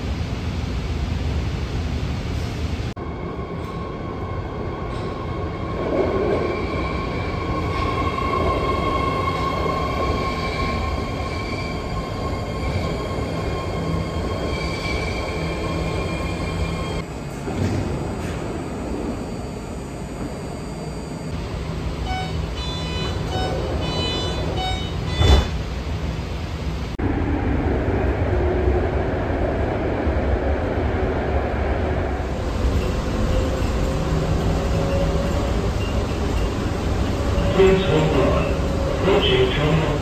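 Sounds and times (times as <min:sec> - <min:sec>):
train doors shutting: 0:04.8 - 0:26.2
train electric whine: 0:06.8 - 0:26.2
train rumble: 0:21.3 - 0:40.0.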